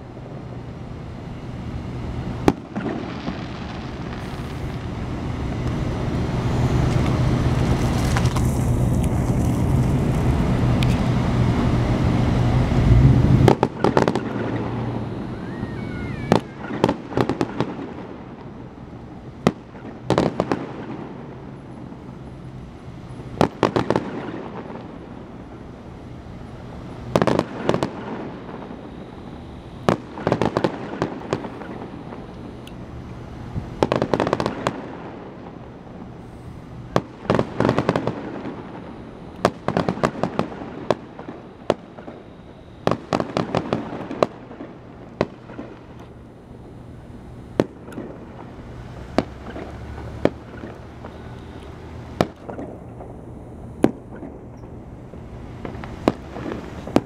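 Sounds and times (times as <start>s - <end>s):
firework shells bursting: 2.4s - 5.8s, 13.4s - 18.4s, 36.9s - 57.0s.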